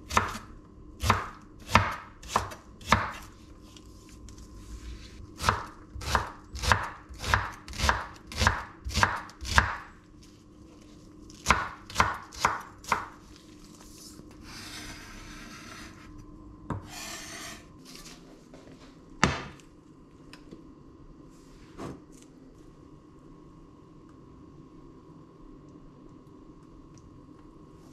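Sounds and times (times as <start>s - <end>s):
knife chopping on cutting board: 1.0s - 3.3s, 5.4s - 9.9s, 11.4s - 13.2s
knife scraping cutting board: 14.4s - 18.2s
knocks on cutting board: 19.2s - 19.6s.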